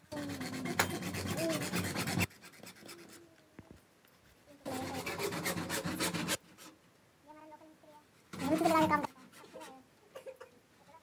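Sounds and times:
hacksaw cutting plastic pipe: 0.1s - 3.0s, 4.7s - 6.4s, 8.3s - 9.5s.

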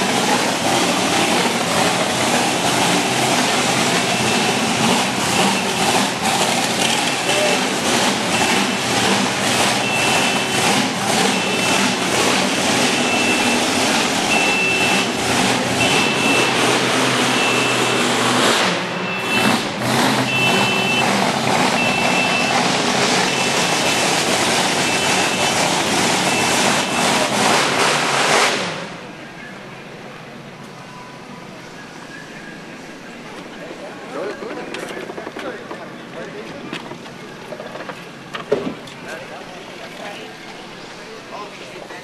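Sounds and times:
vehicle noise: 0.0s - 42.0s
reversing alarm beeping: 3.9s - 6.2s, 7.1s - 18.3s, 18.9s - 19.6s, 20.2s - 27.3s.

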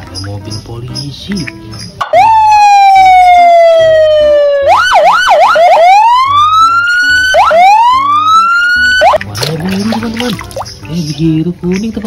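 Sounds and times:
police siren wailing and yelping: 2.0s - 9.2s.

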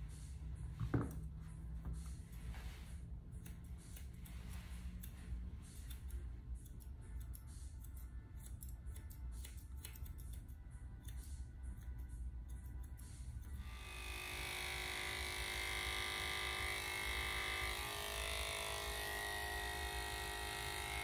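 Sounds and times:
scissors snipping fur: 3.3s - 13.8s.

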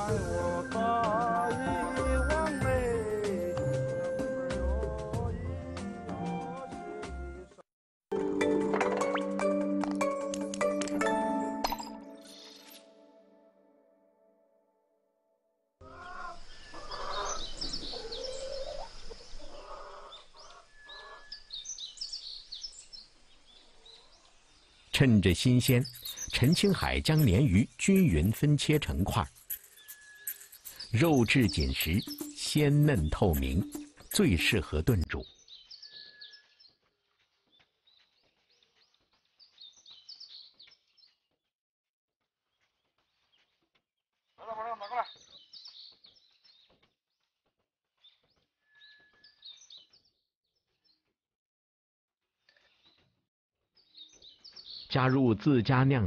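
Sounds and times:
low pitched bird calls: 15.8s - 22.7s, 23.9s - 36.6s
small birds chirping: 15.8s - 41.4s, 42.5s - 47.3s, 48.0s - 51.1s, 53.8s - 55.2s.

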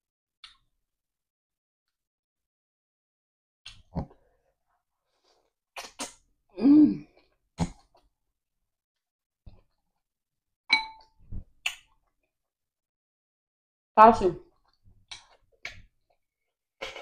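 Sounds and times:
person's short vocal sound: 6.6s - 7.0s.

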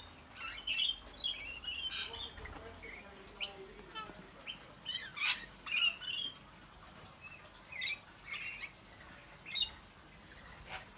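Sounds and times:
parrots screeching: 0.3s - 6.4s.

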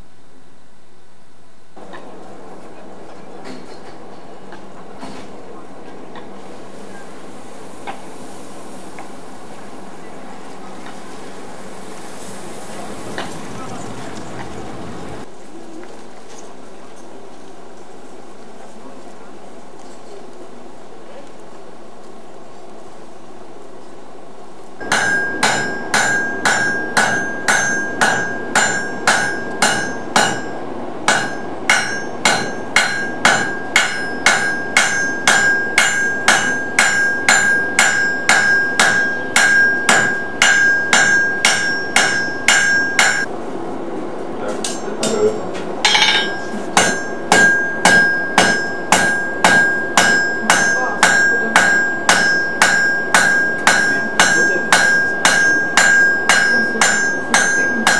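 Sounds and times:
anvil ringing: 24.8s - 43.3s, 45.8s - 57.9s
hammer striking iron on anvil: 24.8s - 43.3s, 44.6s - 57.9s.

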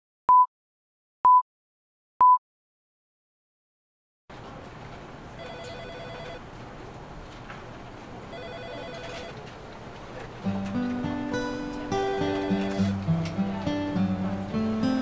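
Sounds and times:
telephone trilling ring: 5.4s - 6.4s, 8.3s - 9.4s, 12.2s - 13.0s.

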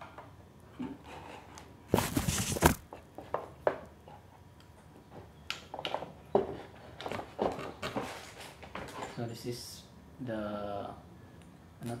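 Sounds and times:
microphone handling rustle: 1.9s - 2.9s.

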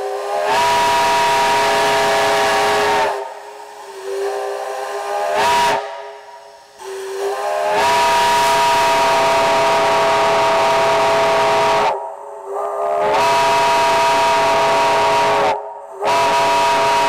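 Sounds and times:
chime steam whistle: 0.0s - 12.0s, 12.8s - 17.0s
loud steam hiss: 0.0s - 17.0s.

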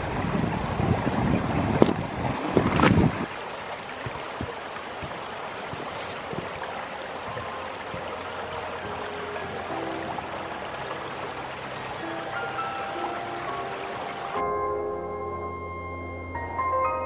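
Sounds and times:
wind buffeting microphone: 0.0s - 14.4s
creek flowing over rocks: 0.0s - 17.0s
faint footsteps on stones: 3.9s - 8.8s
boot footsteps: 4.0s - 8.3s.

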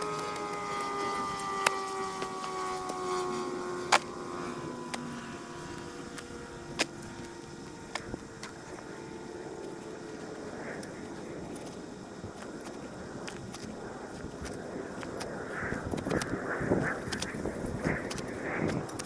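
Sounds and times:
distant engine passing by: 0.0s - 10.0s.

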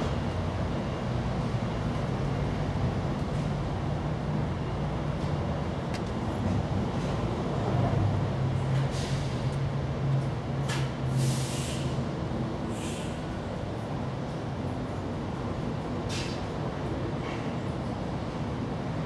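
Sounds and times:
short hissing: 11.2s - 12.0s, 12.7s - 13.2s.

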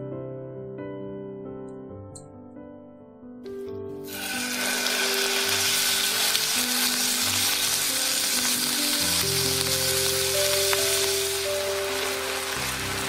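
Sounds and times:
light background music: 0.0s - 13.0s
meat sizzling in oil: 4.0s - 13.0s.

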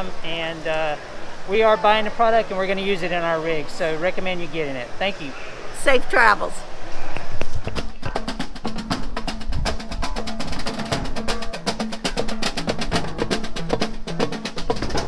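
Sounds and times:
hand drums beating: 7.6s - 15.0s
large drum struck with mallet: 7.8s - 15.0s.

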